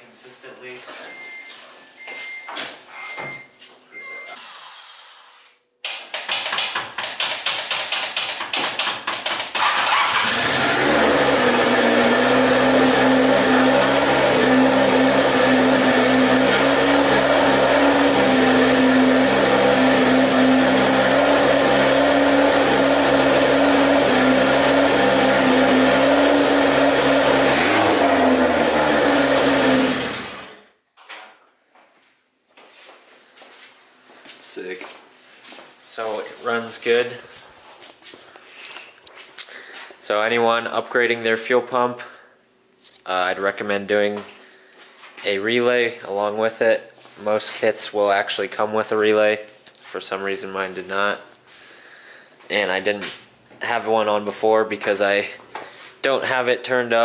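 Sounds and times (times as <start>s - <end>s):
short beeps: 1.0s - 4.4s
car engine cranking: 8.8s - 30.6s
car engine idling: 10.3s - 30.0s.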